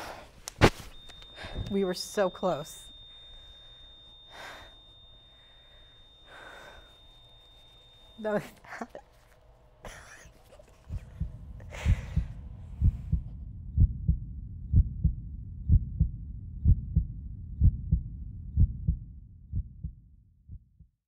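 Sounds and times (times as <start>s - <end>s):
heartbeat thumps: 10.8s - 21.0s.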